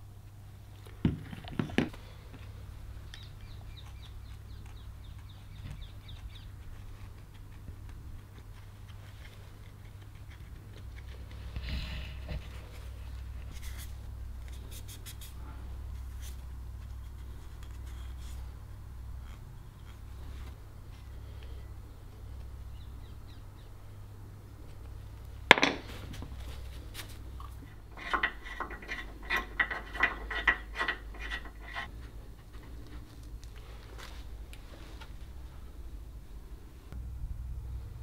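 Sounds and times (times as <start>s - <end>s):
steady low hum: 0.0s - 38.0s
scratching and scraping on wood: 3.4s - 18.6s, 25.5s - 35.3s
loud rasp: 27.6s - 32.0s.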